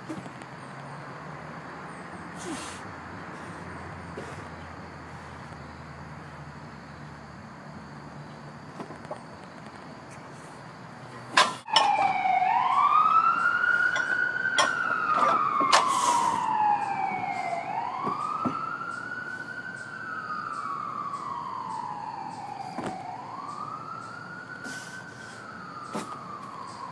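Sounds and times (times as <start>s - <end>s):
siren wailing: 11.4s - 26.9s.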